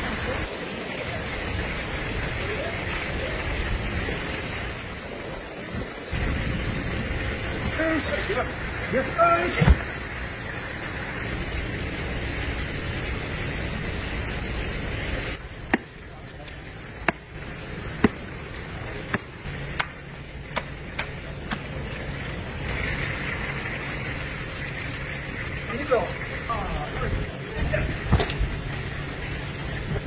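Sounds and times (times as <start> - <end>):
water running from hose: 0.0 - 30.0.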